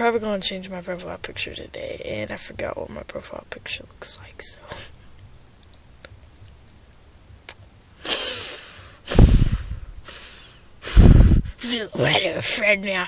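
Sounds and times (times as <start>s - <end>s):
breathy hiss: 7.9s - 12.6s
muffled blast of breath on microphone: 8.0s - 11.6s.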